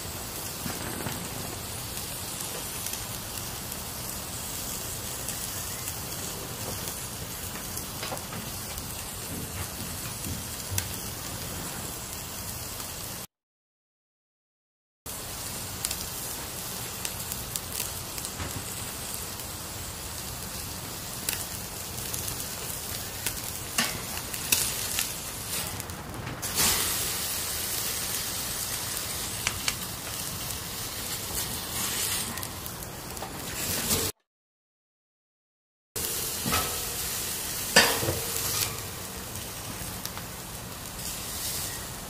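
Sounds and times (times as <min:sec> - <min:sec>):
crackles and pops: 0:00.0 - 0:11.4, 0:20.4 - 0:26.5, 0:27.7 - 0:33.6, 0:37.8 - 0:40.9
meat sizzling on a grill: 0:00.0 - 0:13.3, 0:15.1 - 0:34.1, 0:36.0 - 0:42.0.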